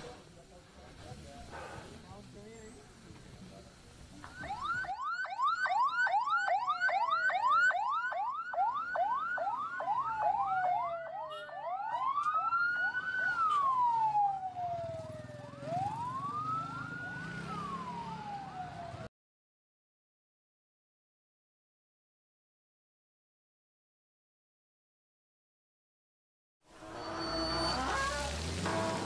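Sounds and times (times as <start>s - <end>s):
ambulance siren: 4.2s - 19.1s, 26.8s - 29.0s.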